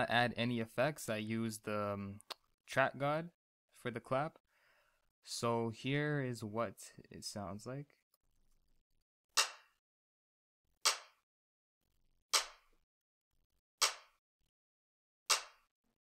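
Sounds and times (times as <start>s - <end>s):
programmed hip-hop clap sample: 10.9s - 11.2s, 12.4s - 12.7s, 13.8s - 14.2s, 15.3s - 15.7s.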